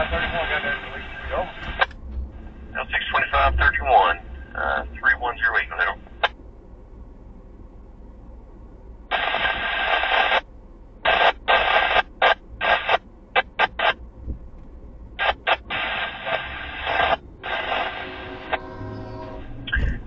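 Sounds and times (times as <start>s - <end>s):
radio scanner static bursts: 0.0s - 1.9s, 2.6s - 6.4s, 9.1s - 10.5s, 11.1s - 14.0s, 15.2s - 18.7s.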